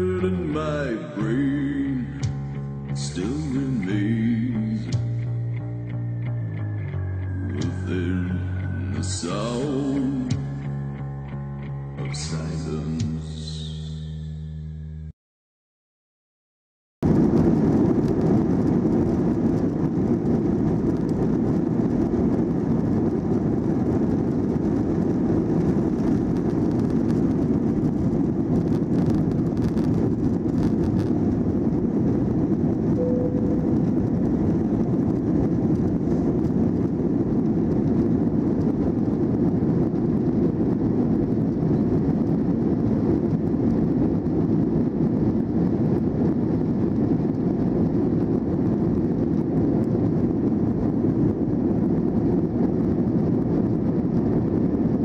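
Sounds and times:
jet engines at takeoff power: 17.0s - 55.0s.

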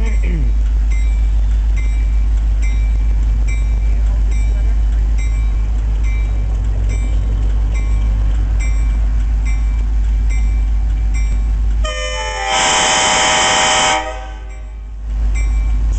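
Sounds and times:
diesel locomotive engine rumbling: 0.0s - 15.9s
locomotive bell ringing: 0.0s - 15.9s
locomotive air horn blast: 11.8s - 14.7s.

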